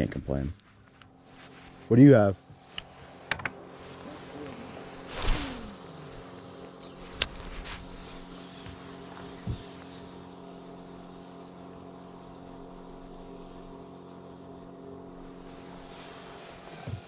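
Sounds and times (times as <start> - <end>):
electric trolling motor humming: 1.0 - 17.0
dull low thump: 9.4 - 9.8.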